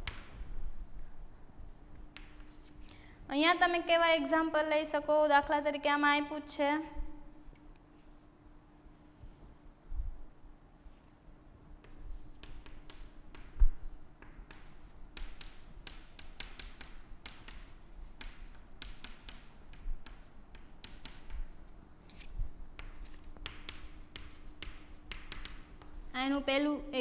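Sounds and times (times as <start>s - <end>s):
chalk tapping and scratching: 1.9s - 2.8s, 7.8s - 8.3s, 10.8s - 26.2s.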